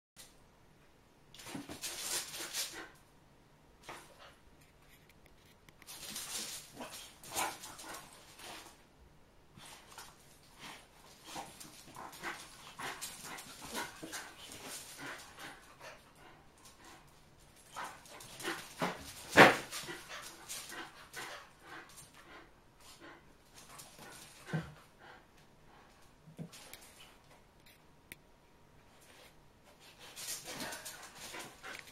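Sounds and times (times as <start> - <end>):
dogs scuffling and panting: 1.4 - 3.0, 5.9 - 8.8, 9.6 - 27.4, 29.0 - 31.9.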